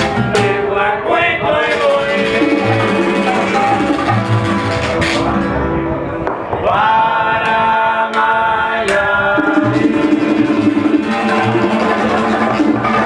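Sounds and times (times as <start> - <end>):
man singing long notes: 0.0 - 4.1, 6.6 - 13.0
acoustic guitars: 0.0 - 6.2, 9.4 - 13.0
guiro scraping: 1.6 - 5.6
hand drums: 1.7 - 5.3, 9.4 - 13.0.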